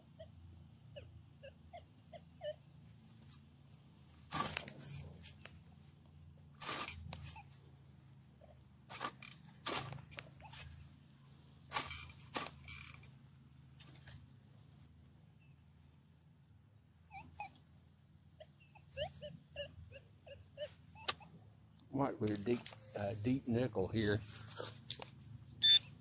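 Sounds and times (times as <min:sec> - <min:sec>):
metal detector beeps: 0:25.6 - 0:26.0.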